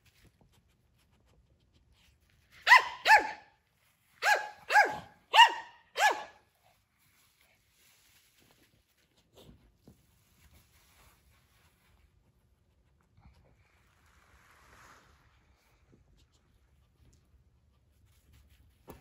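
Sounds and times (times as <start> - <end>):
small dog barking: 2.6 - 3.6, 4.2 - 6.5.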